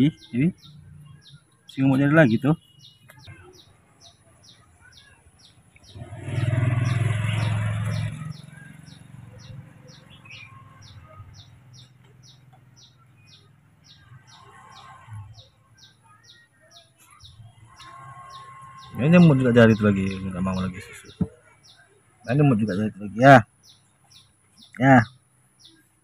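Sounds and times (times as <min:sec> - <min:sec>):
bird chirping: 0:00.0 - 0:26.0.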